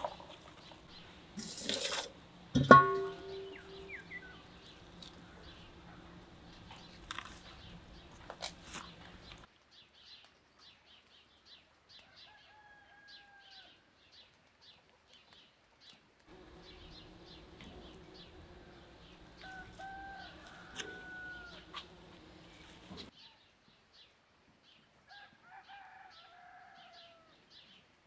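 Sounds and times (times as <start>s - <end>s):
small birds chirping: 3.2s - 12.4s, 13.3s - 24.9s.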